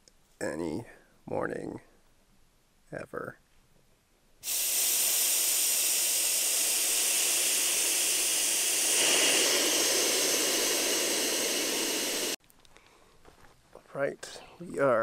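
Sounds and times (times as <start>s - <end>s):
air hissing from valve: 4.4s - 12.4s.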